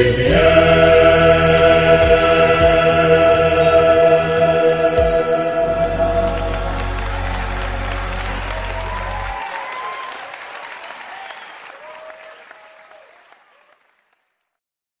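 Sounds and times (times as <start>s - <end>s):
deep bass accompaniment: 0.0s - 9.3s
voices calling out: 0.0s - 9.9s
congregation applauding: 5.5s - 14.4s.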